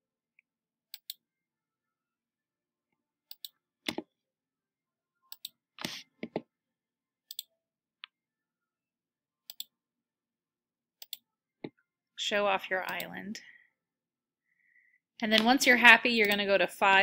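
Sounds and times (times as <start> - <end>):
computer mouse clicking: 3.3 - 4.0, 11.0 - 11.2, 12.9 - 13.1, 16.2 - 16.4.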